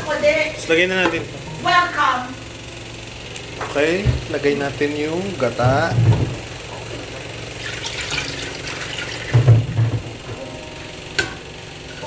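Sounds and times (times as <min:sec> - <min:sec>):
liquid pouring into metal pot: 0:07.6 - 0:09.5.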